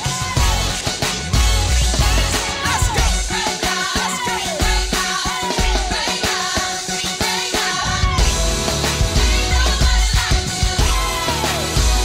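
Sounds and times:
heavy bass: 0.0s - 3.8s, 7.9s - 12.0s
drum beat: 0.0s - 6.6s, 8.2s - 12.0s
person singing: 9.2s - 12.0s.

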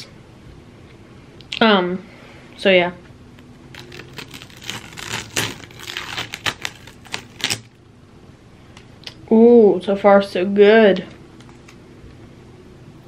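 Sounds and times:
tape peeling off canvas: 3.7s - 7.8s.

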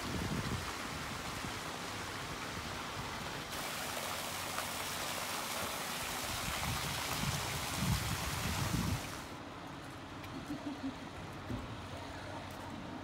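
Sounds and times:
water gushing from pipes: 0.0s - 9.4s
water splashing into floodwater: 0.0s - 9.4s.

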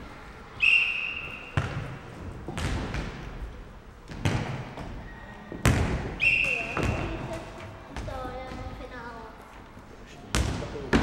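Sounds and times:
referee's whistle: 0.6s - 1.7s, 6.2s - 7.3s
ball bouncing on wooden floor: 1.6s - 3.3s, 4.1s - 8.8s.

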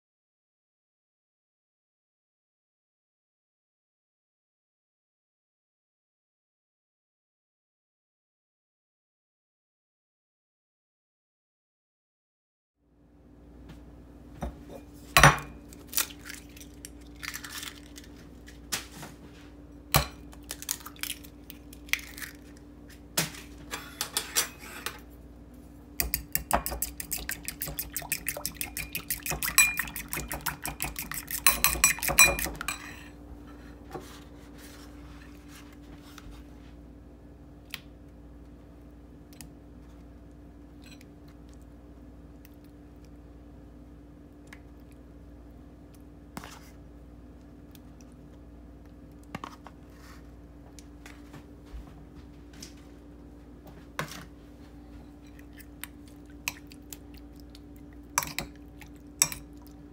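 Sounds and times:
low steady hum: 12.8s - 59.9s
kitchenware knocks and clinks: 14.4s - 15.6s, 31.5s - 33.1s
fork beating eggs in a bowl: 26.0s - 33.1s, 58.2s - 59.6s.

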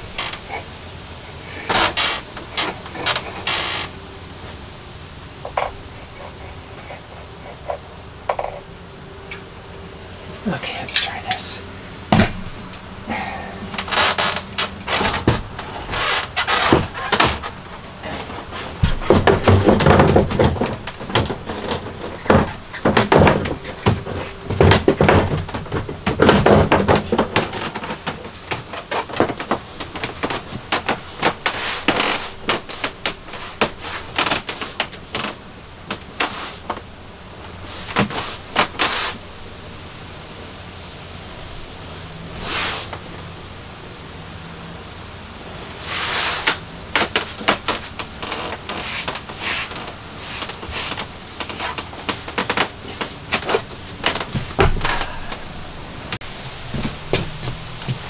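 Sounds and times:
steady low background noise: 0.0s - 58.0s
knocks thuds and scraping: 5.4s - 8.6s, 12.1s - 39.2s, 46.4s - 58.0s.

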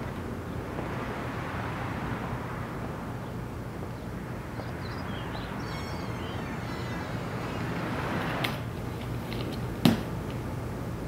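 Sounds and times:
outdoor background rumble: 0.0s - 11.0s
quick bird chirps: 4.0s - 8.4s.

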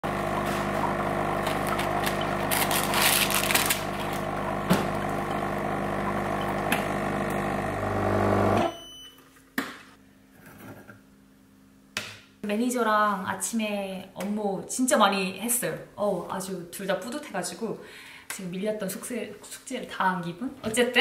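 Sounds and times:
machine hum: 0.0s - 8.7s
plastic wrapper crackling: 1.5s - 4.3s.

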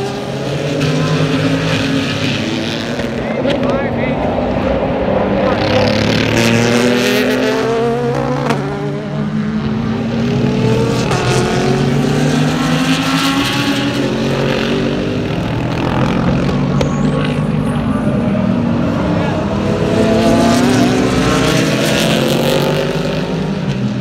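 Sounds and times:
race cars passing at speed: 0.0s - 24.0s.

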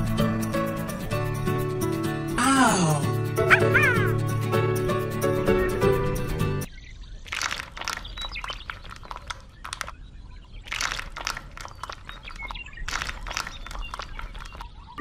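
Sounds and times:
stones grating: 7.3s - 9.9s, 10.7s - 14.8s.

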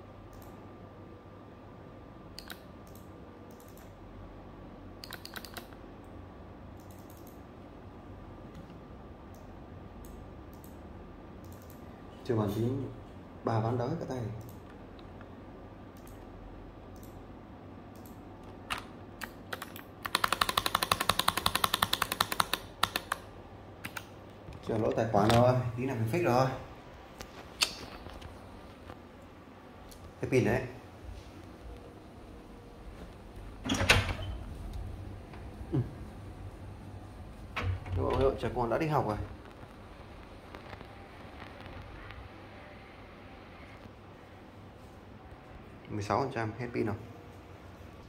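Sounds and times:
faint steady hum: 0.0s - 48.0s
computer keyboard typing: 2.4s - 3.9s, 5.0s - 5.8s, 6.8s - 7.4s, 11.4s - 11.8s, 17.9s - 24.1s.

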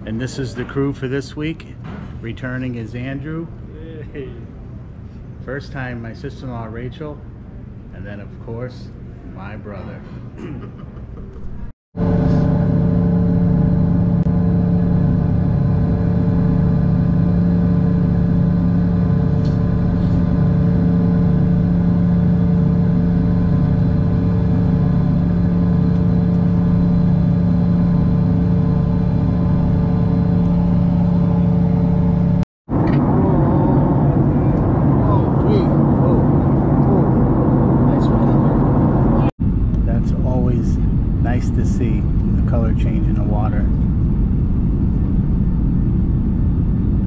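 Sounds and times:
jet engine drone in cabin: 0.0s - 47.0s
rushing cabin noise in turbulence: 11.3s - 47.0s.

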